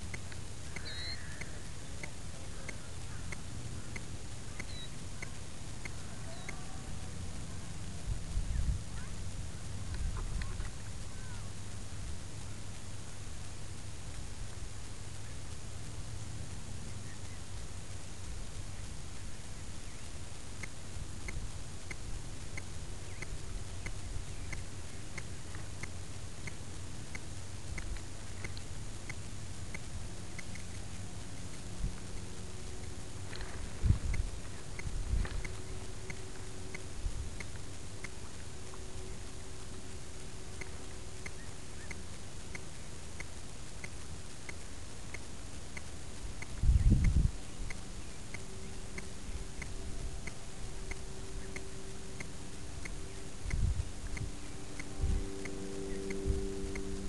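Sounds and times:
short high ticks: 0.0s - 57.0s
steady low hum: 0.0s - 57.0s
wind buffeting microphone: 8.0s - 11.4s, 33.2s - 36.0s, 46.4s - 48.1s, 53.3s - 55.3s.

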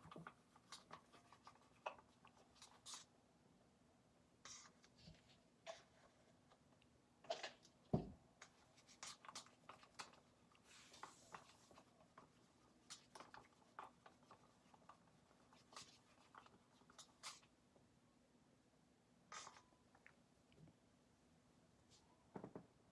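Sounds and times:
stick scraping plastic cup: 8.4s - 17.5s, 19.3s - 19.7s.

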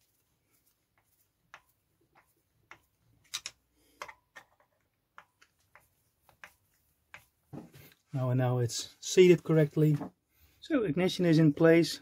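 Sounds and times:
screwdriver clicking and scraping: 1.5s - 7.3s.

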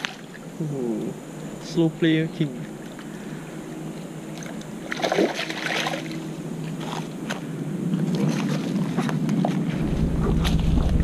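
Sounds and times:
fish splashing in water: 4.4s - 9.6s.

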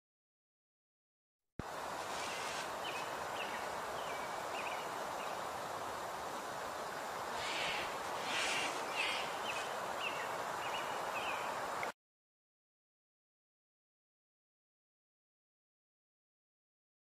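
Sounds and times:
background hiss: 1.6s - 12.0s
rustling: 2.0s - 2.8s, 7.3s - 9.8s
small birds chirping: 2.0s - 11.9s.

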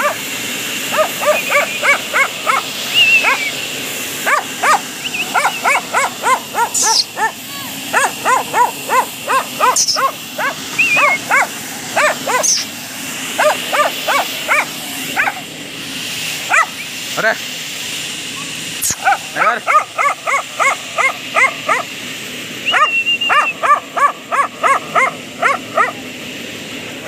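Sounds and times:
dog barking: 0.0s - 0.2s, 0.9s - 3.5s, 4.2s - 12.7s, 13.4s - 15.4s, 16.5s - 16.8s, 18.9s - 21.9s, 22.7s - 26.0s.

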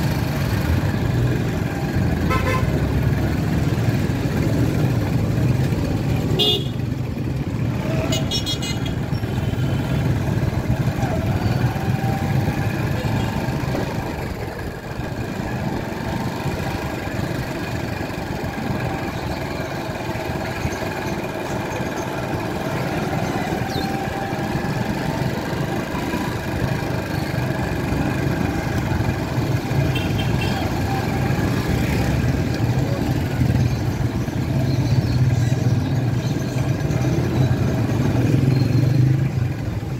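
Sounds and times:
motorcycle engine running: 0.0s - 39.9s
street traffic: 0.0s - 39.9s
vehicle horn toot: 2.2s - 2.7s, 6.4s - 6.8s, 29.8s - 30.7s.

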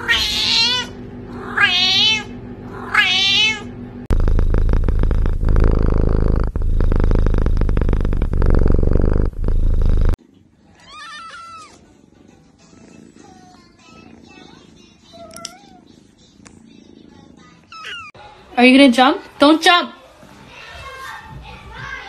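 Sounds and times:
cat meowing: 0.0s - 3.7s
kitten purring loudly: 0.0s - 10.2s, 12.6s - 16.1s.

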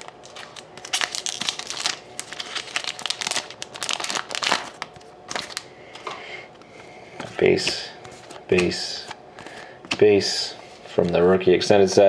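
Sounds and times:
foil wrapper crinkling: 0.0s - 5.7s.

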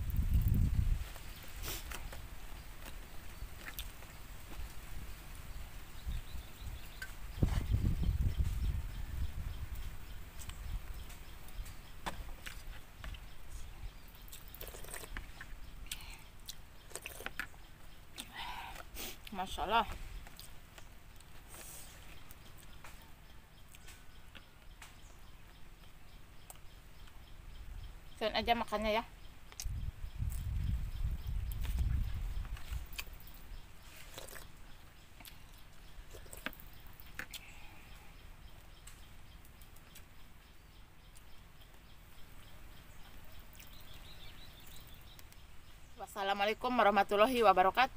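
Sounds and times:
person chewing: 3.6s - 4.0s, 14.2s - 17.5s, 34.0s - 34.6s, 35.2s - 37.6s.

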